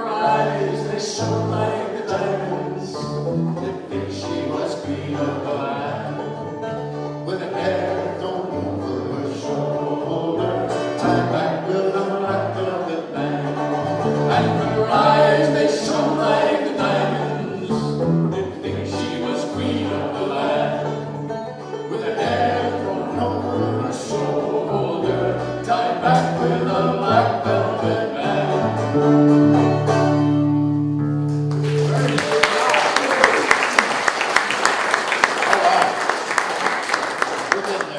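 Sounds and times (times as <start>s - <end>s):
man singing: 0.0s - 6.4s, 7.2s - 13.7s, 14.3s - 20.5s, 21.9s - 28.9s
banjo picking: 0.0s - 31.7s
acoustic bass walking line: 0.1s - 32.0s.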